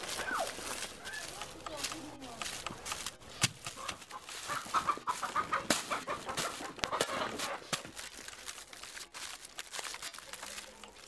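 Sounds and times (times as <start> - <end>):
dry woven mat crackling: 0.0 - 11.0
chickens clucking: 3.6 - 7.8.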